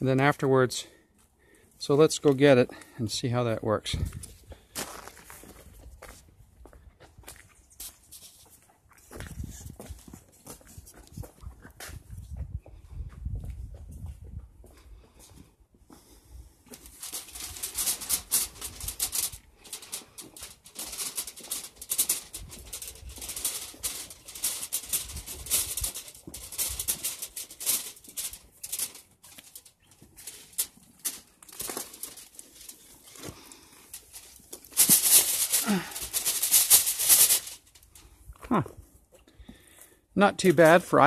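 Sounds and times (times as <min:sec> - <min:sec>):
crinkly plastic sheeting rustling: 0:16.7 - 0:38.2.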